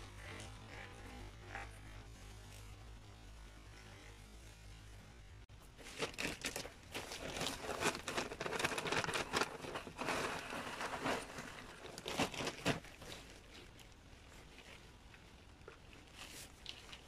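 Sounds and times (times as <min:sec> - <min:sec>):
plastic bag crinkling: 0:05.8 - 0:13.8
soil spilling: 0:05.8 - 0:13.9.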